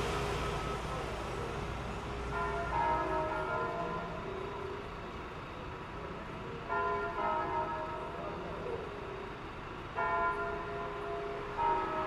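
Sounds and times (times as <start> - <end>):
church bells ringing: 0.0 - 5.3, 6.5 - 12.0.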